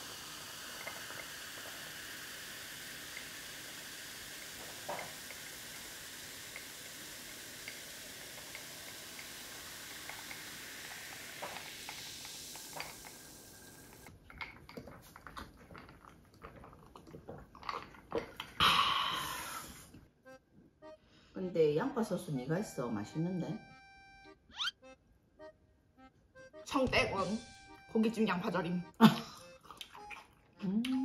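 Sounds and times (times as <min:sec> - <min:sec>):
cola fizzing in a glass: 0:00.0 - 0:19.6
gulps while drinking: 0:14.8 - 0:19.8.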